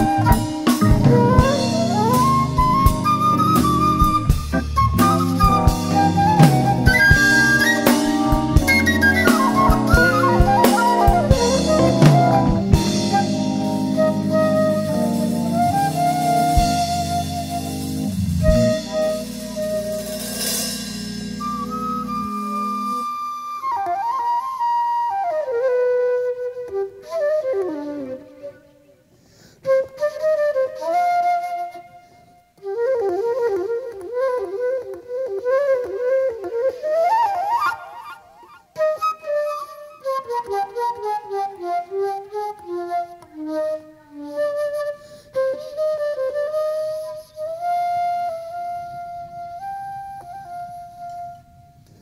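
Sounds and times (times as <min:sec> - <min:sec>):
jazz flute solo: 0:00.0 - 0:52.0.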